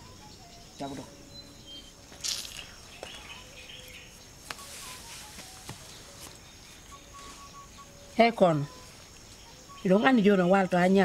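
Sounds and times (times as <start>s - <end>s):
bird chirps: 0.0s - 10.9s
insects humming: 0.0s - 11.0s
rustle: 2.2s - 8.0s.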